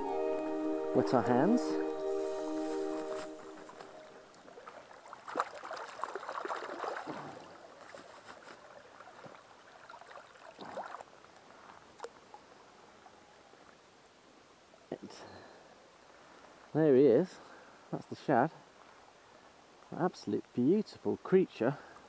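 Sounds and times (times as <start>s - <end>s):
hands splashing river water: 1.8s - 12.5s.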